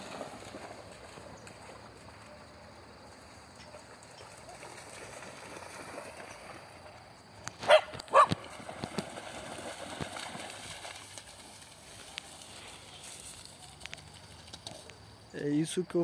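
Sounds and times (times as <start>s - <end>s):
dog barking: 7.6s - 8.4s.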